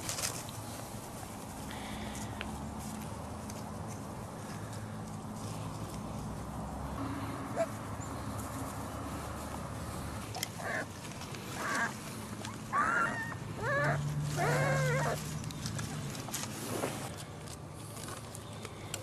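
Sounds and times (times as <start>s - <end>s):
puppies yipping and whining: 10.4s - 10.9s, 11.5s - 15.3s.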